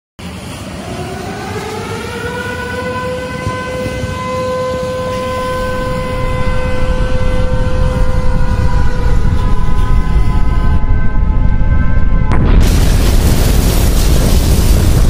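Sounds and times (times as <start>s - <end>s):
warning siren: 0.2s - 15.0s
low rumble: 5.0s - 15.0s.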